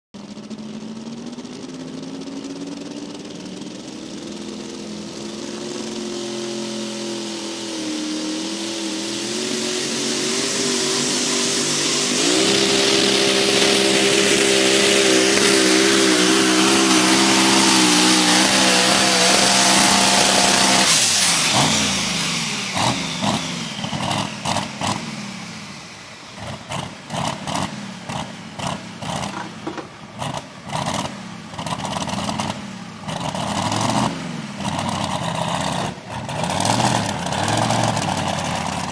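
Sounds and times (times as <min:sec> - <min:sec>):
engine throttle blips: 0:00.2 - 0:38.9
truck engine at full throttle: 0:00.2 - 0:38.9
loud turbo hiss: 0:04.1 - 0:38.9.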